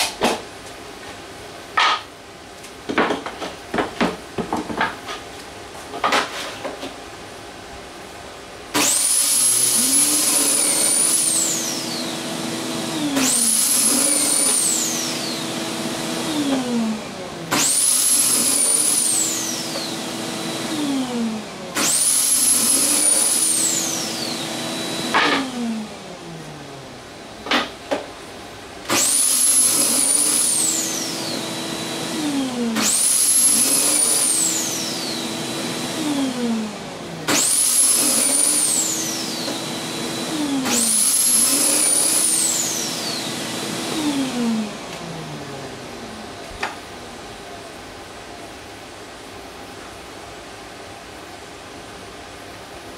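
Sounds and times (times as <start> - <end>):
electric saw whining: 8.8 - 26.8, 28.9 - 46.2.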